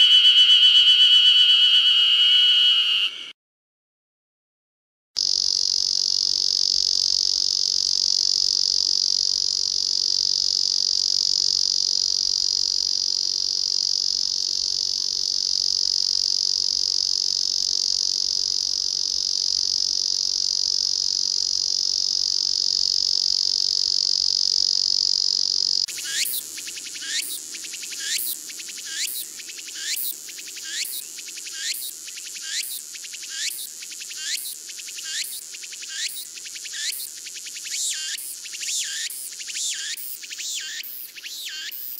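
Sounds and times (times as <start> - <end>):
cicada sharp high notes: 0.0 - 3.3, 21.8 - 41.9
cicada steady buzz: 0.0 - 3.3, 5.2 - 41.9.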